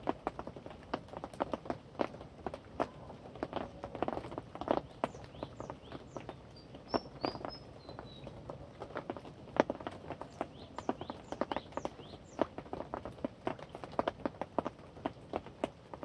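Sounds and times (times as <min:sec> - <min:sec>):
rain drops tapping: 0:00.0 - 0:16.0
faint high bird chirps: 0:05.0 - 0:08.3.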